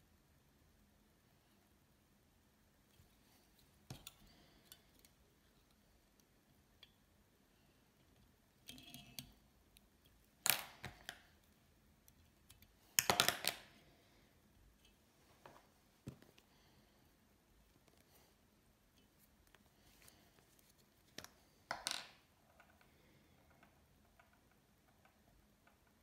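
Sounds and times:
soft clicks of tying tool: 2.9 - 7.0
thread rustling: 18.9 - 21.6.

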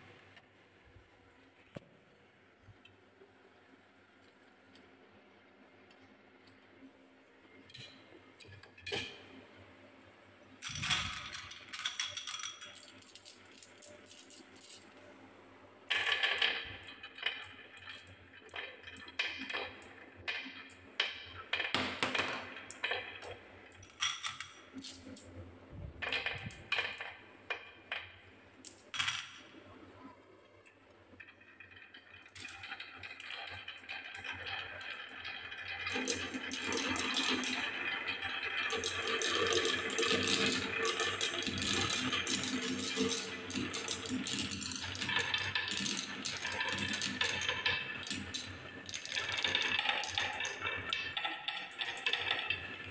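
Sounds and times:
balls rolling down wooden track: 10.6 - 14.9, 15.9 - 25.3, 26.0 - 29.6, 30.8 - 52.9
wooden balls clacking: 31.1 - 52.9.

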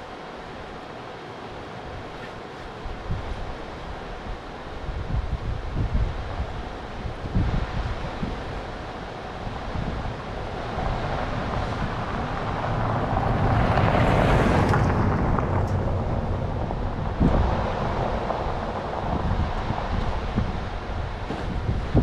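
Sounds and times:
wind buffeting the microphone: 1.9 - 22.0
truck driving past on gravel: 10.8 - 19.2.

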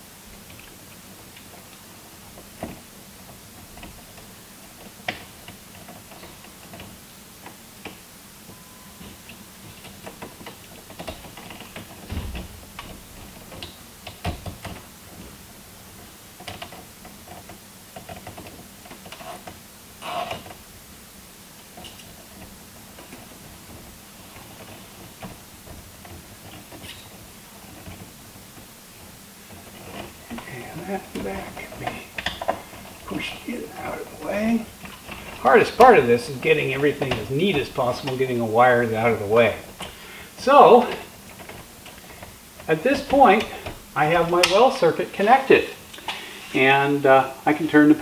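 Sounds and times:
low steady hum: 0.0 - 48.0
wires and fittings clicking: 0.4 - 20.7, 21.6 - 46.8.

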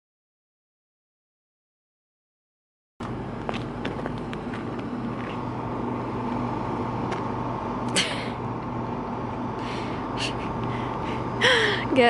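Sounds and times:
machine hum: 3.0 - 12.0.

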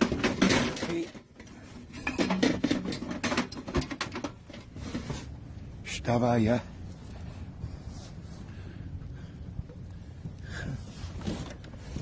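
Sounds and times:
metal lamp rustling and clattering: 0.0 - 5.4.

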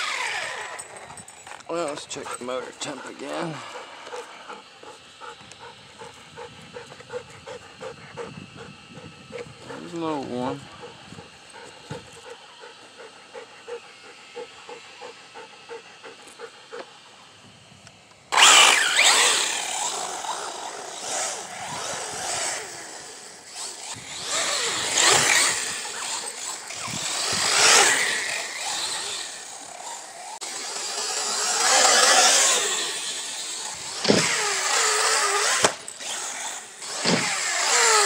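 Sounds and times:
electric motor whine: 0.0 - 38.0
tyres throwing dirt: 36.9 - 37.4.

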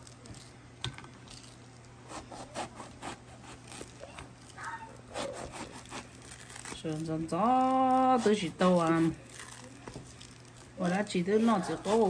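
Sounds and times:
knife rasping through grapefruit peel: 2.0 - 4.0, 5.0 - 9.7, 10.9 - 12.0.

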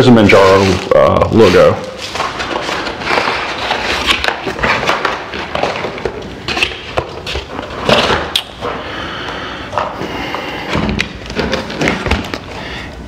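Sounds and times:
packing paper crinkling: 0.2 - 8.8.

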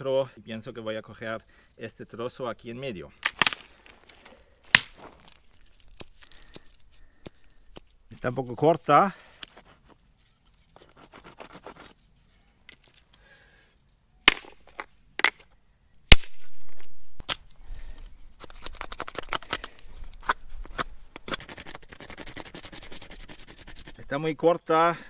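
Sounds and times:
rock flakes cracking off: 3.2 - 7.8
stone scraping a stick: 9.4 - 13.0, 18.4 - 24.2.

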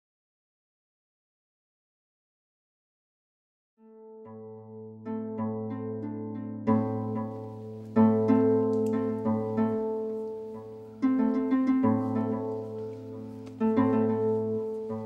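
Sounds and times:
plucked string notes: 4.0 - 15.0.

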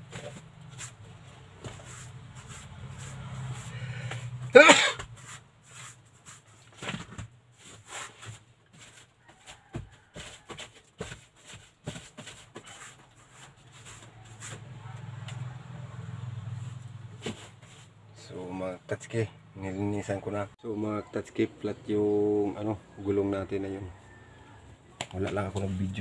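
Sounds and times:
scratchy brushing strokes: 0.7 - 4.3, 5.1 - 6.7, 11.2 - 14.8.

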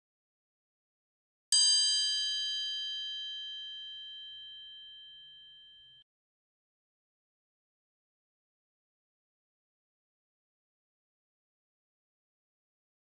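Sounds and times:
bell ding: 1.6 - 6.0.

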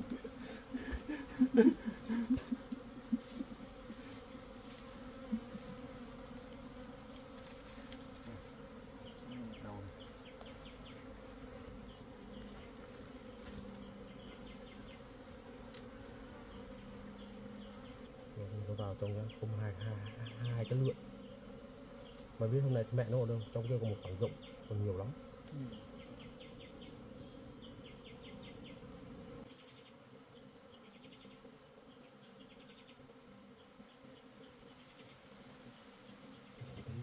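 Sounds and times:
bees buzzing: 0.0 - 37.0.

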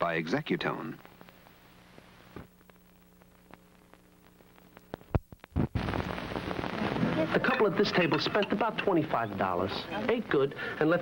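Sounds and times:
faint videotape hum: 0.0 - 11.0
sharp clicks and pops: 1.0 - 6.8
loud hiss-like noise: 5.6 - 11.0.

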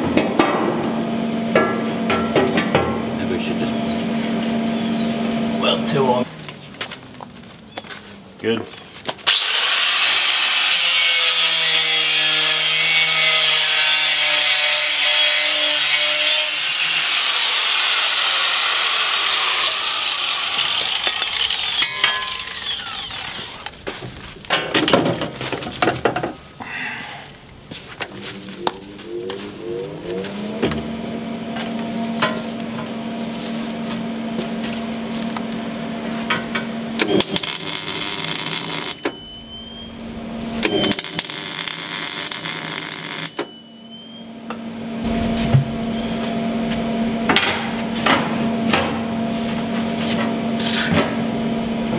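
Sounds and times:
grinder scraping: 9.2 - 24.4, 37.0 - 39.1, 40.6 - 43.4
angle grinder grinding steel: 9.3 - 23.8, 37.0 - 39.1, 40.6 - 43.6
grinder motor humming: 17.0 - 23.8.

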